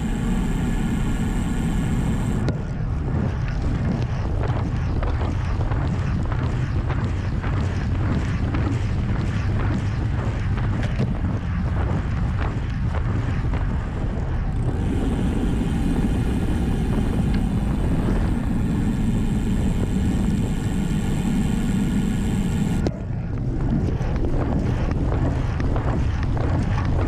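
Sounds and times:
bike freehub buzzing: 0:00.0 - 0:02.5, 0:14.5 - 0:22.9
bike tyre and road noise: 0:00.0 - 0:22.9
wind buffeting microphone: 0:00.0 - 0:27.0.

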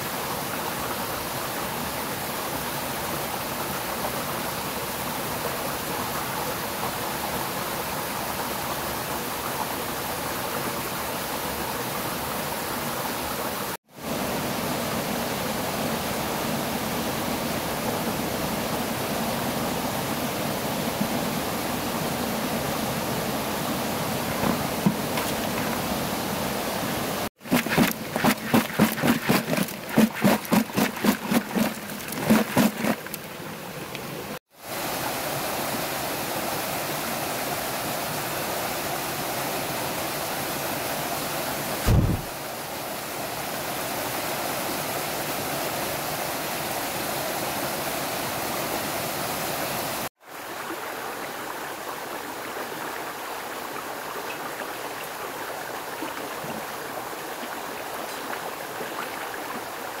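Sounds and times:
forest stream running: 0:00.0 - 1:00.0
low thump: 0:41.9 - 0:42.3.

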